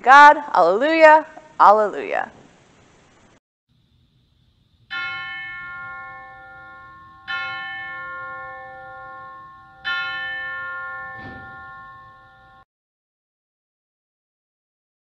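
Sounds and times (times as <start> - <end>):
church bell tolling: 4.9 - 12.6.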